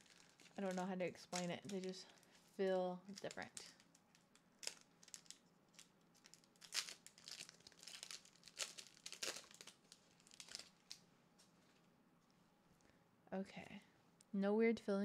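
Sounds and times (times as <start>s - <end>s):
foil wrapper crinkling and tearing: 0.0s - 2.4s, 3.1s - 11.0s.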